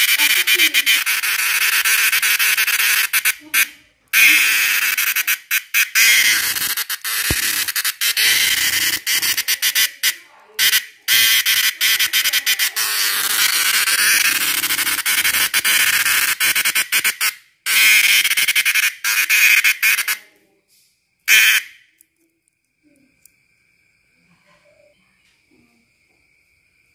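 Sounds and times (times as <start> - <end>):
cicada rattling buzz: 0.0 - 20.2.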